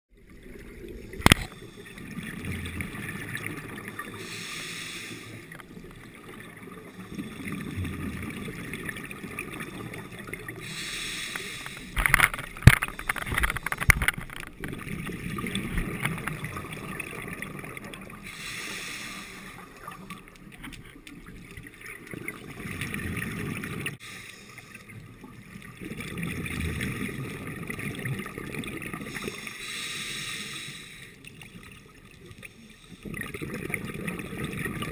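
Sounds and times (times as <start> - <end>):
regulator hissing inhalation: 4.2 - 5.6, 10.6 - 12.0, 18.2 - 19.7, 29.1 - 31.2
bubbling exhalation underwater: 33.1 - 34.9.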